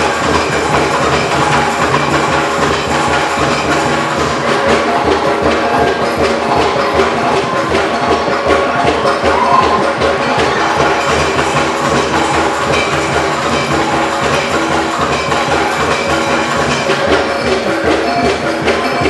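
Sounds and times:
drums: 0.0 - 19.0
held tones: 9.2 - 10.3.

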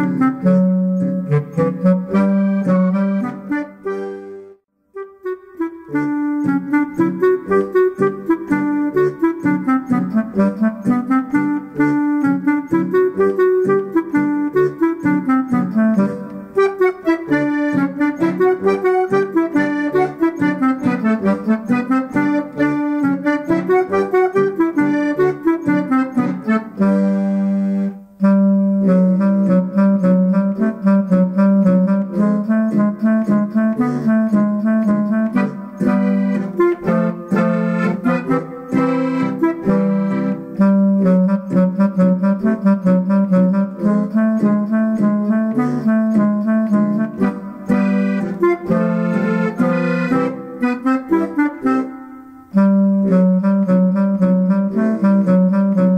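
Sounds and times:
accordion folk dance music: 0.0 - 28.1, 28.8 - 55.9.

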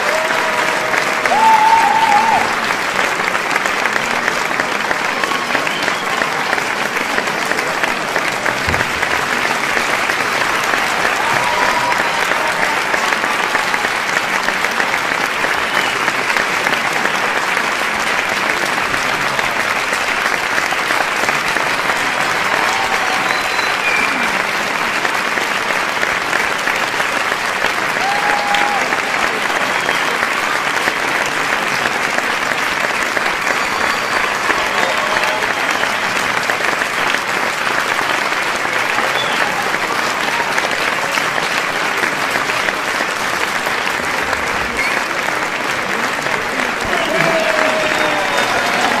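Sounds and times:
cheers and shouts: 0.0 - 2.8, 10.5 - 14.0, 22.2 - 24.4, 27.8 - 30.1, 33.3 - 36.2, 45.9 - 49.0
audience clapping: 0.0 - 49.0.

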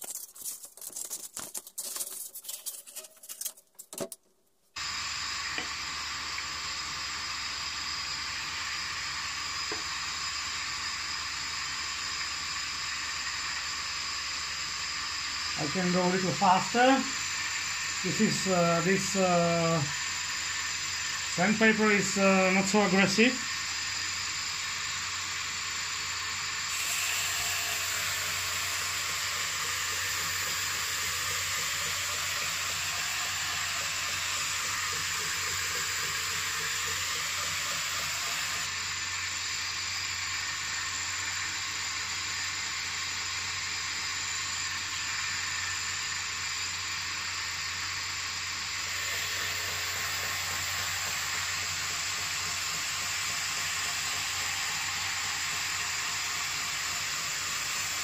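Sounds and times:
steel grinding on sander belt: 4.8 - 39.4, 47.7 - 58.0
belt sander motor hum: 4.8 - 58.0.

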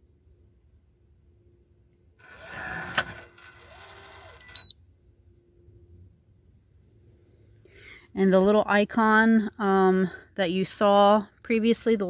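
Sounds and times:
lock motor whirring: 2.2 - 4.7
short high beep: 4.3 - 4.8.

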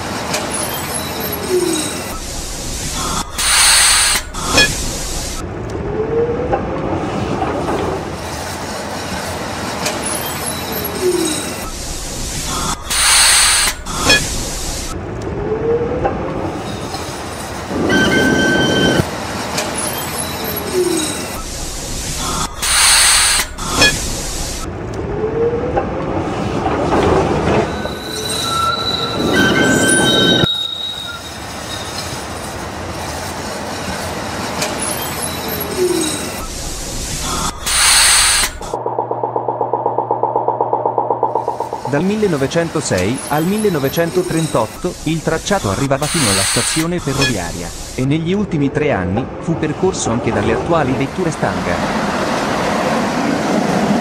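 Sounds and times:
tram rolling rumble: 0.0 - 54.0
wheel squeal: 0.4 - 2.2, 9.9 - 11.8, 17.8 - 21.5, 27.5 - 32.4, 34.6 - 36.6, 43.0 - 44.9
air hiss: 2.6 - 4.4, 11.7 - 14.9, 21.4 - 24.6, 36.4 - 38.7, 43.5 - 48.0.

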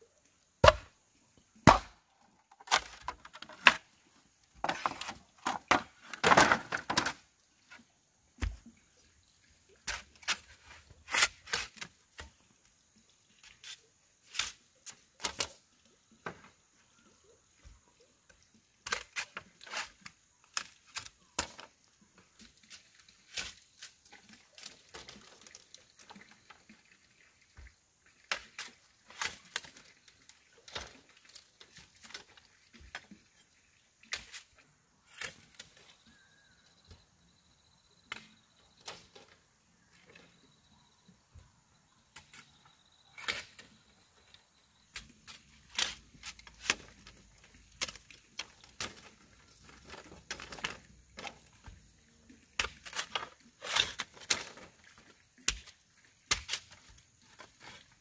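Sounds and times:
machete striking bamboo: 0.6 - 0.9, 1.6 - 2.0
bamboo poles knocking together: 0.6 - 1.0, 1.6 - 4.0, 4.6 - 7.2.

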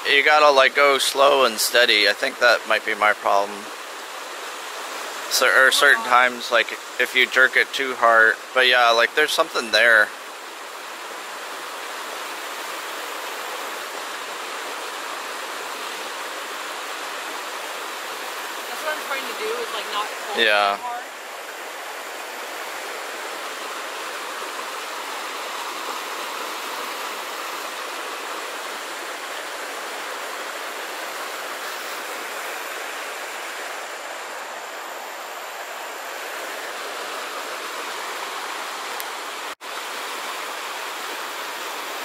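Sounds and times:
water pouring over waterfall: 0.0 - 3.8, 4.5 - 21.4.

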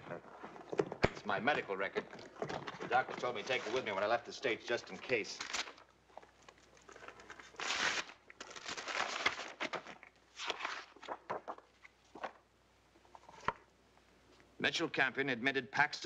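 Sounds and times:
paper rustling and crinkling: 0.2 - 12.4.

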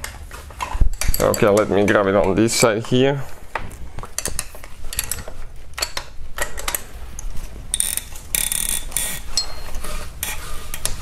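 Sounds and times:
wrench metal clicks: 7.7 - 9.4.

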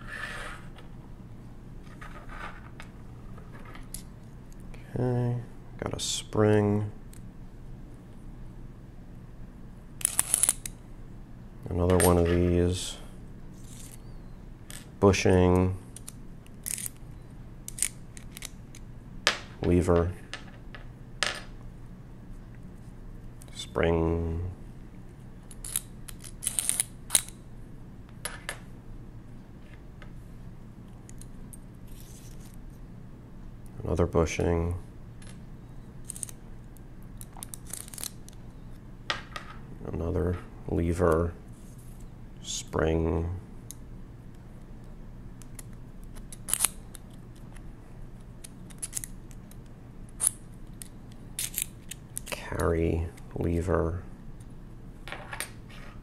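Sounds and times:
small metal parts clicking: 16.0 - 17.0, 36.0 - 36.4, 48.4 - 49.2, 50.2 - 52.3.

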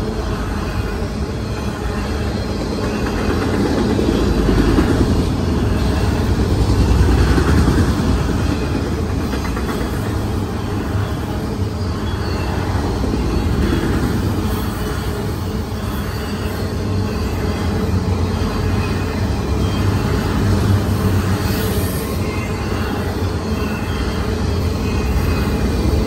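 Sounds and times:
freight train rumbling over bridge: 0.0 - 26.0.

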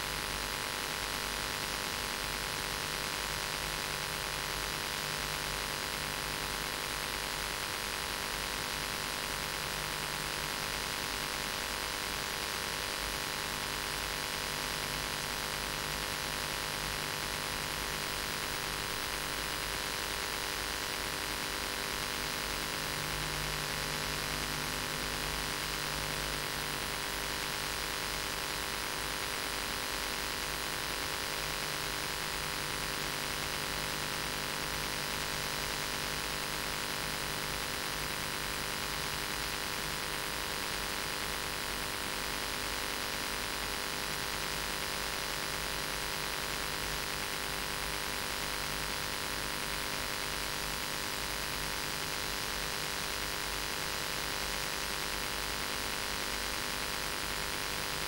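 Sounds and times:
mains hum: 0.0 - 58.0.

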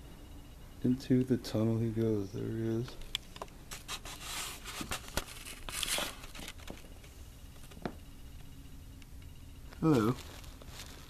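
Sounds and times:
fabric tunnel crinkling and rustling: 9.8 - 11.0.

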